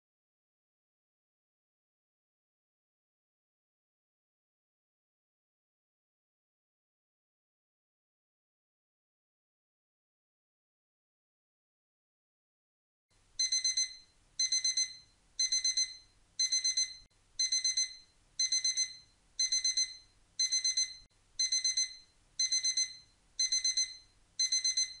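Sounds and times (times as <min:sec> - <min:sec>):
alarm clock beeping: 0:13.4 - 0:25.0.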